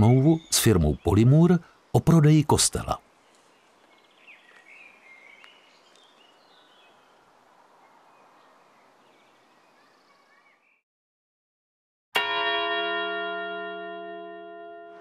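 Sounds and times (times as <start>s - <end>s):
songbirds chirping: 0.0s - 10.8s.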